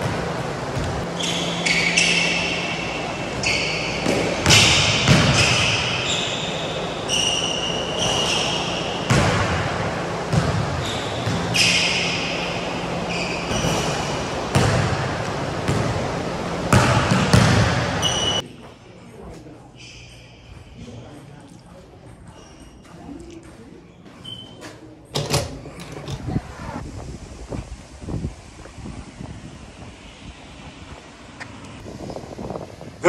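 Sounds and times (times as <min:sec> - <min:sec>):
sneaker squeaks: 0:00.0 - 0:09.5, 0:10.3 - 0:14.9, 0:16.7 - 0:18.7, 0:19.3 - 0:26.2
basketball bouncing on hardwood: 0:16.7 - 0:17.8.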